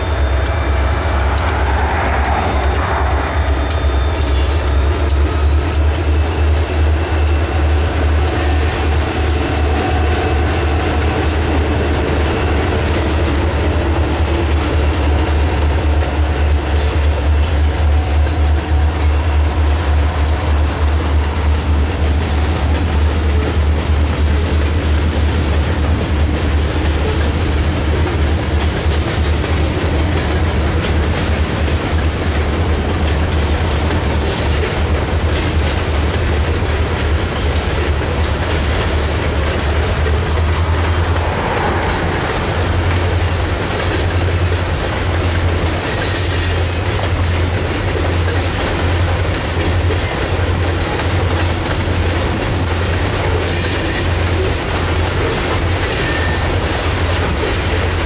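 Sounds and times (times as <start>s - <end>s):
high wheel squeals: 0.0s - 7.9s
freight train rolling past: 0.0s - 58.0s
steel wheels rumbling on rail: 0.0s - 58.0s.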